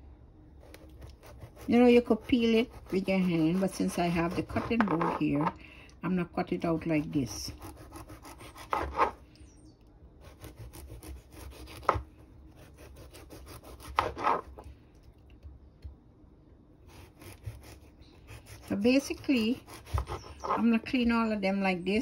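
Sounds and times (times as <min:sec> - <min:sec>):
knife scraping squash skin: 0:00.6 - 0:05.6, 0:06.6 - 0:09.2, 0:10.2 - 0:14.7, 0:16.9 - 0:21.1
blade rasping: 0:16.9 - 0:20.8.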